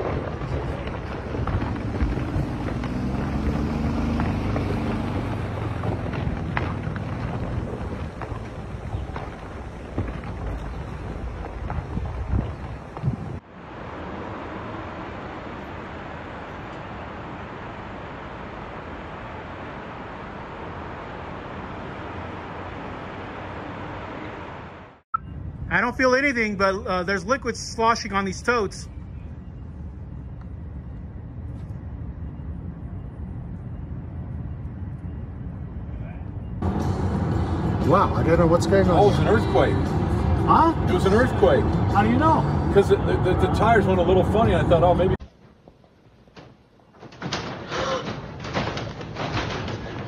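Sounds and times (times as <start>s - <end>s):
rocks cracking: 0.0s - 13.4s
rockslide rumble: 0.0s - 24.8s, 36.6s - 50.0s
steady rushing noise: 0.0s - 26.5s, 27.2s - 46.3s.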